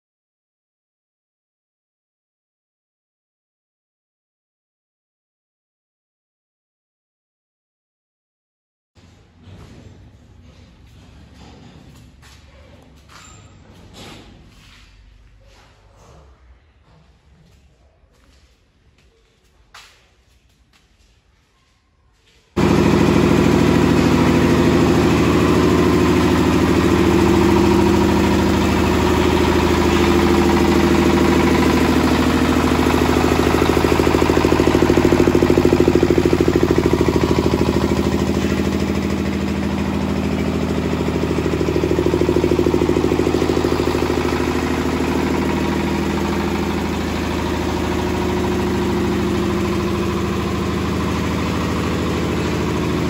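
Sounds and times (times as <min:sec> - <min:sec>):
diesel engine running: 0:22.6 - 0:53.0.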